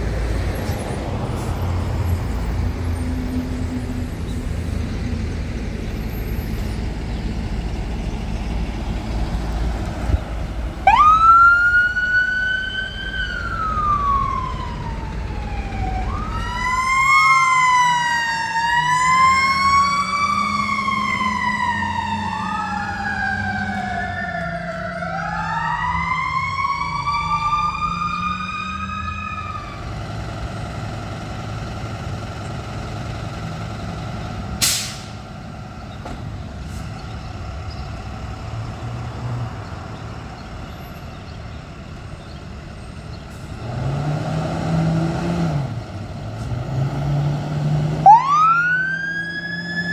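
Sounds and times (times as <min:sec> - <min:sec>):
traffic noise: 0:00.0 - 0:49.9
vehicle engine rumbling: 0:00.0 - 0:49.9
electronic siren wailing: 0:10.8 - 0:29.8, 0:48.0 - 0:49.9.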